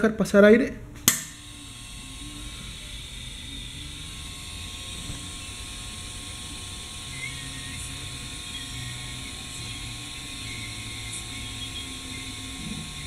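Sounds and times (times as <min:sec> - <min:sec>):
air valve click: 0:01.1 - 0:01.4.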